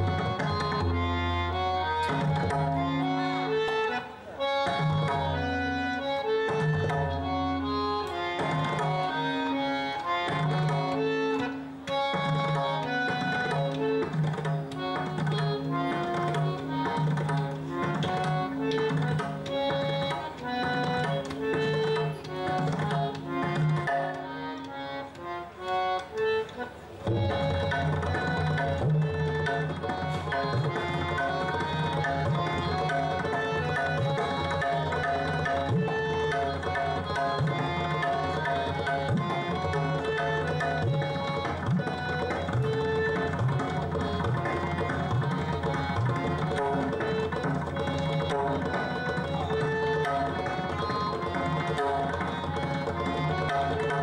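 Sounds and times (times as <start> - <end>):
fast tabla rolls: 0.0 - 54.0
harmonium melody: 0.0 - 54.0.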